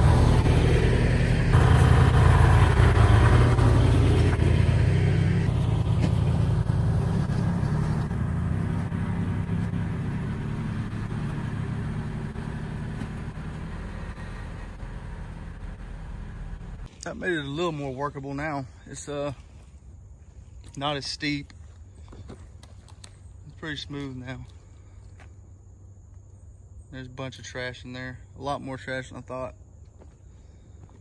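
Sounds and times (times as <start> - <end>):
tractor diesel engine running: 0.0 - 19.2.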